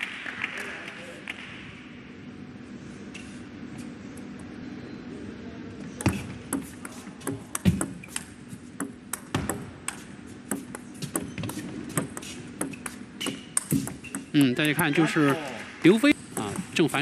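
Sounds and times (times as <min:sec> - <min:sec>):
ping pong ball clicking off bats: 0:06.5 - 0:15.5
ping pong ball bouncing on table: 0:08.8 - 0:09.7, 0:10.5 - 0:14.8.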